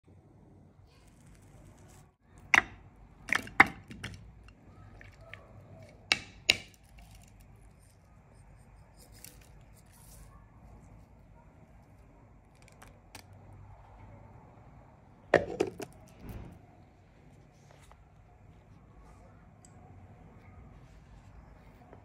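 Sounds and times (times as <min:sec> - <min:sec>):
ingredients knocking into plastic bowl: 0:15.4 - 0:15.9.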